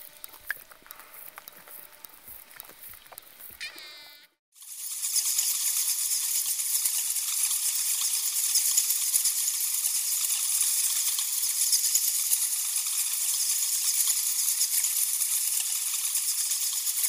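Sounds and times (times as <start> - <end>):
flying foxes squeaking and clicking: 0.8 - 4.2.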